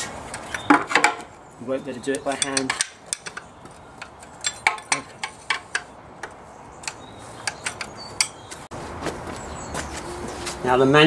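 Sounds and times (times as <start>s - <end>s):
spanner metal clicks and clinks: 2.1s - 8.4s.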